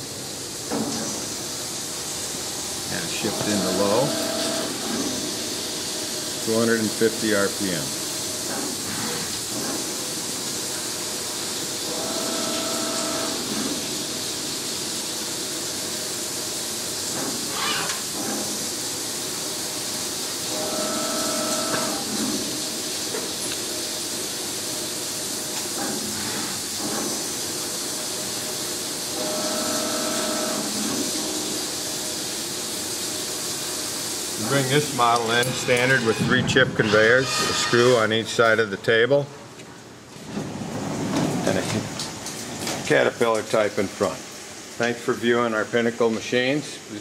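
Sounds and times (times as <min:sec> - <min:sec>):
coolant hissing and splashing: 0:00.0 - 0:47.0
machine whine: 0:02.9 - 0:05.3, 0:11.8 - 0:14.2, 0:20.5 - 0:22.6, 0:29.1 - 0:31.6.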